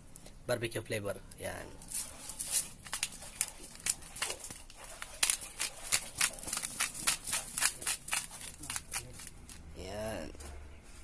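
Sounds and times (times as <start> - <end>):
seasoning shaker ticks and rustles: 1.8 - 9.7.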